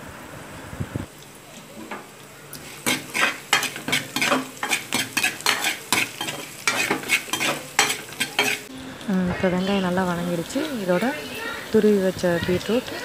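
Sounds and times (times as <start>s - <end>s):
light sizzle of frying: 0.0s - 13.0s
spatula scraping pan: 2.6s - 8.7s.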